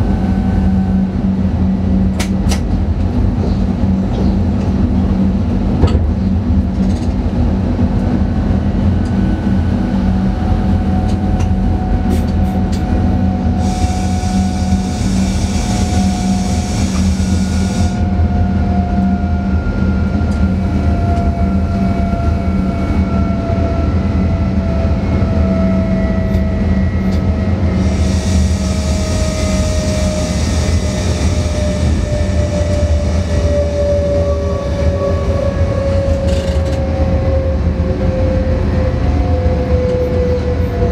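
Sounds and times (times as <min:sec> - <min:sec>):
electric train rumbling on rails: 0:00.0 - 0:40.9
hiss: 0:13.6 - 0:17.9.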